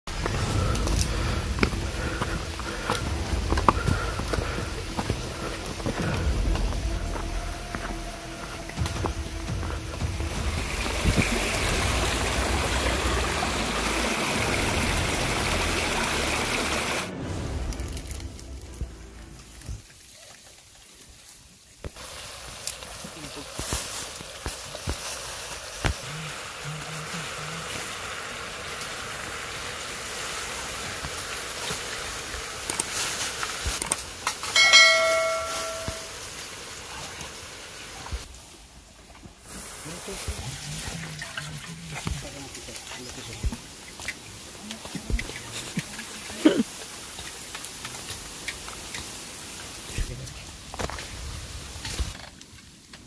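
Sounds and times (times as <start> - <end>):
steady hiss: 0.1 - 53.0
stream running over rocks: 0.1 - 53.0
bell-like ding: 34.6 - 36.2.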